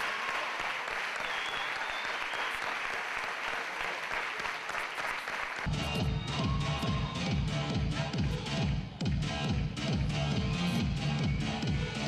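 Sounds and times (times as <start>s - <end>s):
crowd applauding: 0.0s - 9.2s
dance music with heavy beat: 5.7s - 12.0s.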